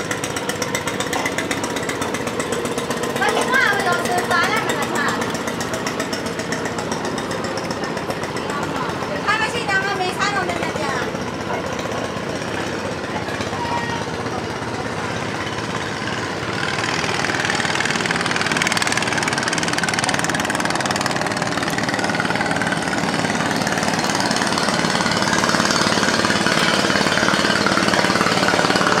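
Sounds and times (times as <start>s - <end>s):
boat engine running loudly: 0.0s - 29.0s.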